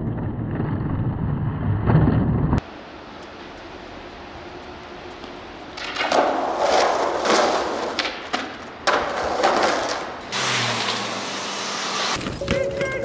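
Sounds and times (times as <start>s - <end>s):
skateboard wheels on rough concrete: 0.0s - 13.0s
steady noise with low hum: 2.6s - 10.3s
skateboard clacking on ground: 5.2s - 10.2s.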